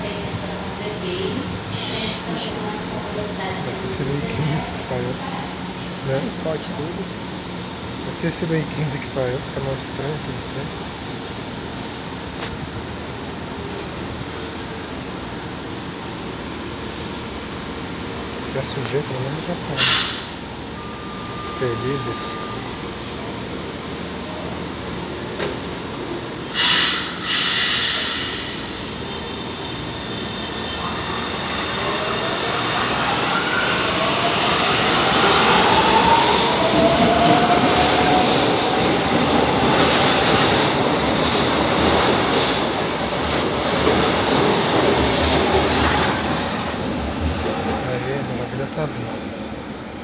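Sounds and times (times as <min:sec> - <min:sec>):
train air brake hisses: 0:01.7 - 0:02.2, 0:19.8 - 0:20.4, 0:26.5 - 0:28.8, 0:41.9 - 0:42.8.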